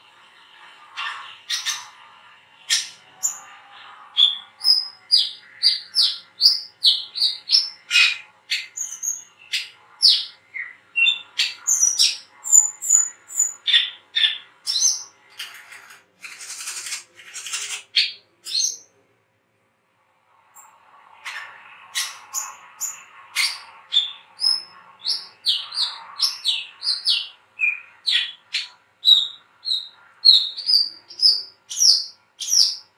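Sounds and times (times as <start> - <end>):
sunbird chirping and whistling: 2.7 - 3.5, 4.2 - 15.1, 22.0 - 32.9.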